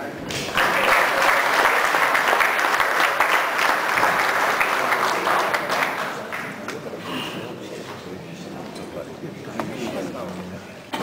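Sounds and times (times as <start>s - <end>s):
audience applauding: 0.4s - 6.8s.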